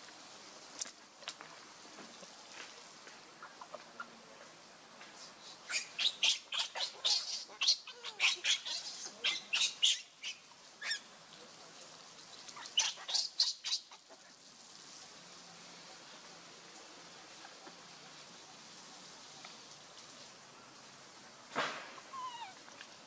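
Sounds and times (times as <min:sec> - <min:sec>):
baby monkey screeching: 0:05.7 - 0:11.0, 0:12.6 - 0:14.0, 0:22.1 - 0:22.6.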